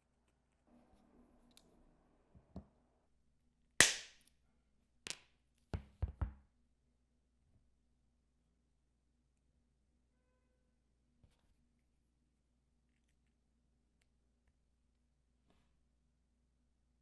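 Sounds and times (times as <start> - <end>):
knocks and clacks on hard surface: 5.8 - 6.4.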